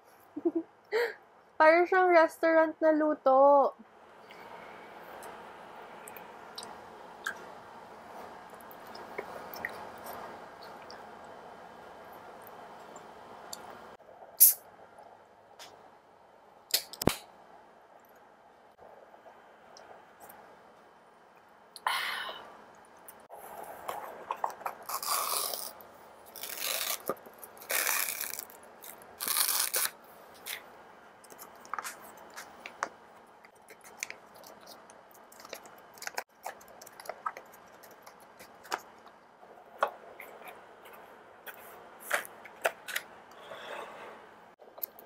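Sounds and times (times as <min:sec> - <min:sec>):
plastic packaging crinkling: 0:24.2 - 0:30.6.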